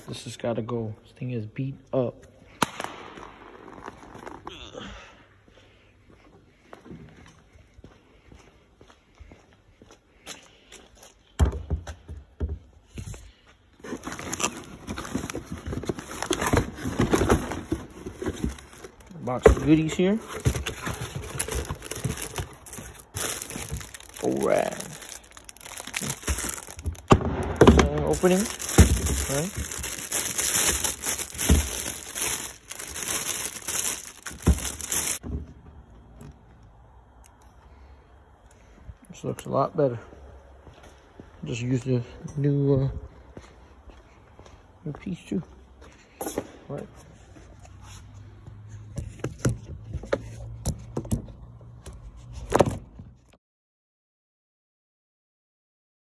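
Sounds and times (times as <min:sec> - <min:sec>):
cardboard box rustling and scraping: 0:13.8 - 0:24.4
plastic packaging crinkling: 0:13.8 - 0:35.2.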